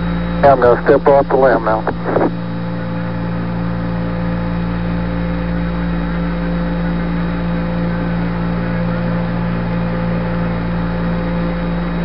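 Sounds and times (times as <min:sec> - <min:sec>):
low buzzing tones: 0:00.0 - 0:12.0
radio link hum and hiss: 0:00.1 - 0:03.0.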